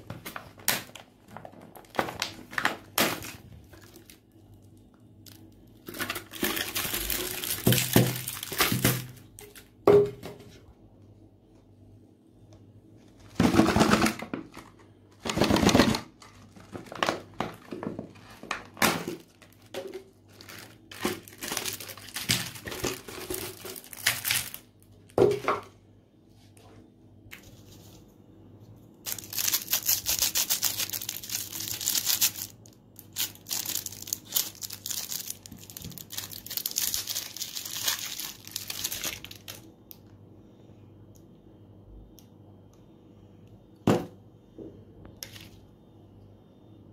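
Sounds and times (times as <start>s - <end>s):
cellophane wrapper crinkling: 0.0s - 9.8s, 14.5s - 25.1s, 29.0s - 40.1s
wrapper tearing: 0.2s - 4.3s, 5.2s - 9.7s, 20.3s - 24.7s, 29.0s - 39.7s.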